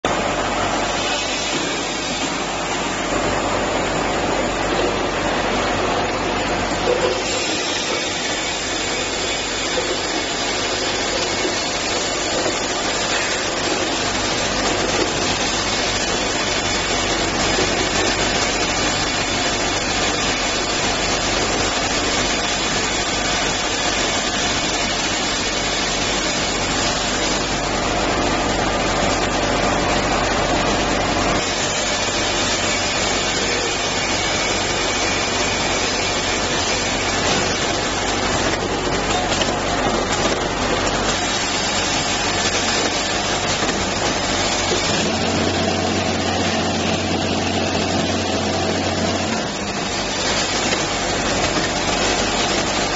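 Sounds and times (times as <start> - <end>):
packaging machine running: 0.0 - 52.9.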